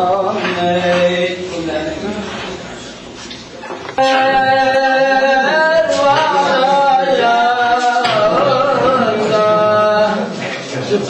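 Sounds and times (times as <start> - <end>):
person singing loudly: 4.0 - 10.4.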